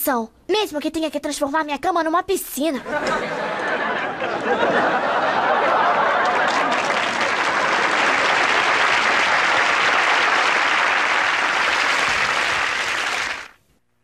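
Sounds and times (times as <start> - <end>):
audience applauding: 3.1 - 13.6.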